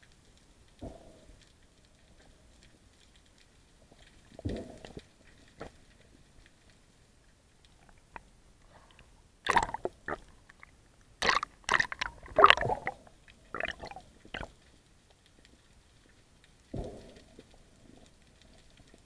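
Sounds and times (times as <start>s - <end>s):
underwater gear clicks and knocks: 8.9s - 14.5s.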